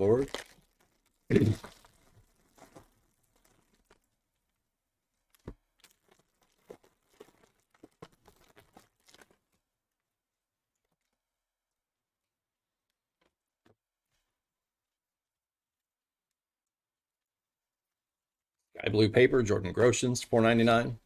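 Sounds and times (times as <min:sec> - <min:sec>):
foil wrapper tearing and crinkling: 0:00.0 - 0:04.2, 0:05.1 - 0:09.6.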